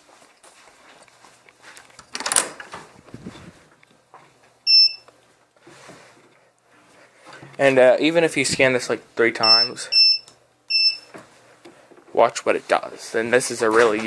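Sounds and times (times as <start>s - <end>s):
scuffing handling noise: 0.0s - 4.6s, 11.1s - 14.0s
card reader beep: 4.7s - 5.1s, 9.4s - 11.1s.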